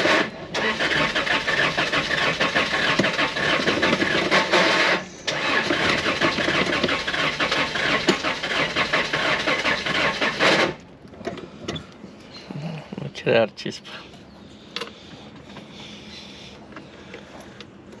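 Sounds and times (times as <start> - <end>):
engine cranking on starter motor: 0.0 - 10.8.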